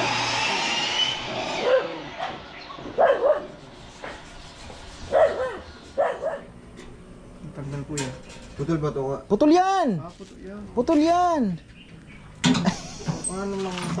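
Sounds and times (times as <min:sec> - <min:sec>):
dog barking: 0:01.6 - 0:02.4, 0:03.0 - 0:03.6, 0:05.1 - 0:06.5.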